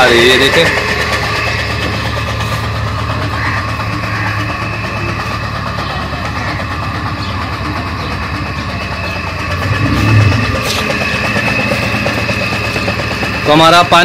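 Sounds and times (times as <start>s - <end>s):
water pump humming: 9.4s - 12.3s
low bump: 9.6s - 11.0s.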